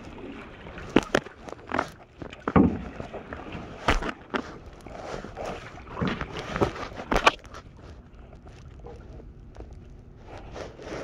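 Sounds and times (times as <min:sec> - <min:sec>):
paddle knocking canoe: 0:00.0 - 0:07.8
water washing: 0:00.0 - 0:09.4.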